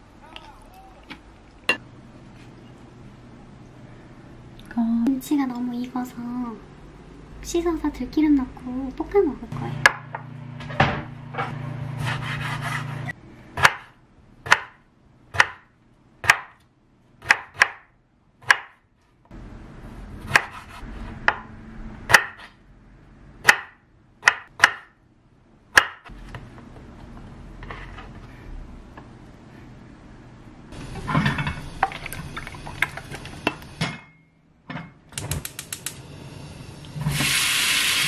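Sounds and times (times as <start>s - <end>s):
knife chopping on wooden board: 13.6s - 16.6s, 17.2s - 18.8s, 20.2s - 21.5s, 22.1s - 22.6s, 23.4s - 24.9s.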